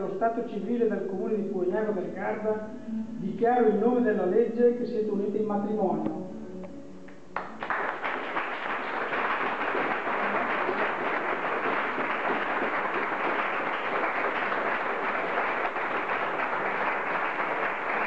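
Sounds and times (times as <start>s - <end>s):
crowd applauding: 7.4s - 18.0s.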